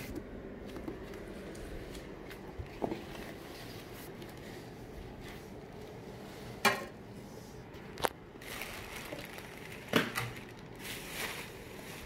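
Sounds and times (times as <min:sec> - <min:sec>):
wrapping and cardboard rustling: 0:08.4 - 0:12.0.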